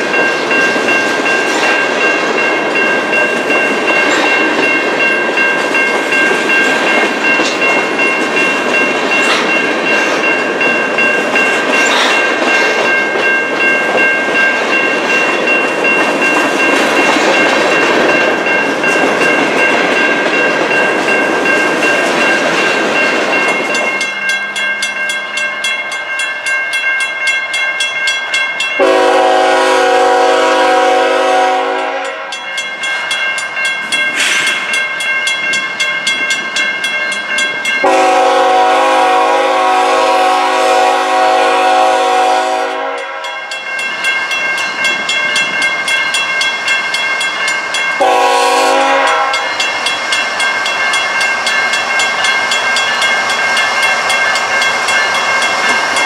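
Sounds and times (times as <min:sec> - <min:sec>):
freight train rail noise: 0:00.0 - 0:56.0
high-pitched ringing: 0:00.1 - 0:29.1, 0:43.0 - 0:56.0
locomotive air horn blasts: 0:28.8 - 0:32.4, 0:37.8 - 0:43.4, 0:48.0 - 0:49.5.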